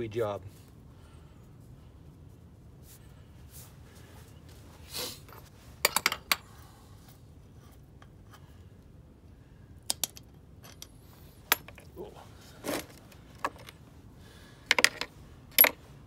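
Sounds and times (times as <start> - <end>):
faint low hum: 0.0 - 16.0
metal nut clinking: 5.3 - 6.4, 9.9 - 12.0, 12.6 - 13.8, 14.7 - 15.8.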